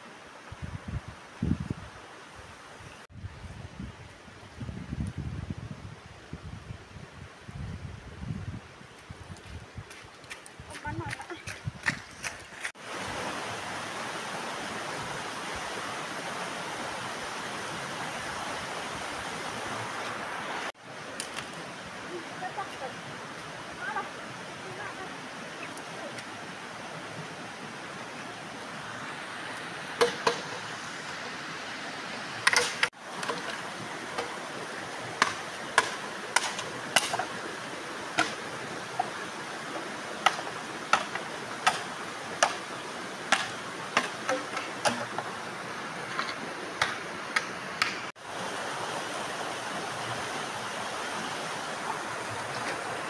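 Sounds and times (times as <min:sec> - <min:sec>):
stream rushing over stones: 0:08.8 - 0:53.0
sharp clacks and knocks: 0:32.4 - 0:33.6, 0:43.3 - 0:45.3.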